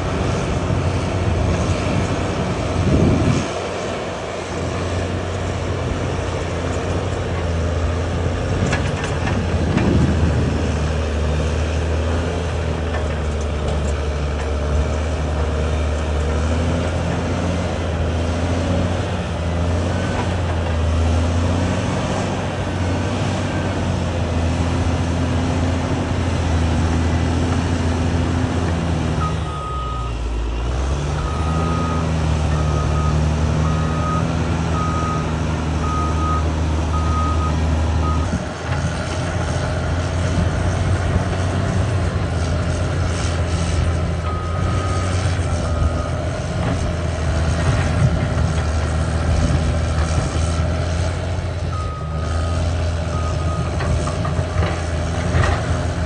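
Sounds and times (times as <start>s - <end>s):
bulldozer diesel engine running: 0.0s - 56.0s
reversing alarm beeping: 29.2s - 30.4s, 31.1s - 38.4s, 44.2s - 46.2s, 51.7s - 53.9s.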